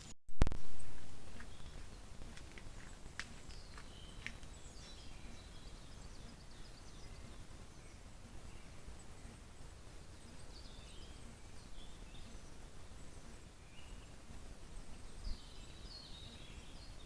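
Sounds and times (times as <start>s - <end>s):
low background hiss and rumble: 0.4s - 17.0s
songbird chirps: 0.6s - 17.0s.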